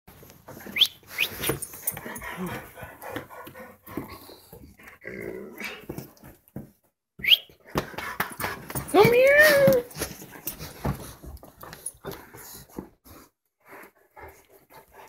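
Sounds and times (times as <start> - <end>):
dog growling: 3.9 - 5.9.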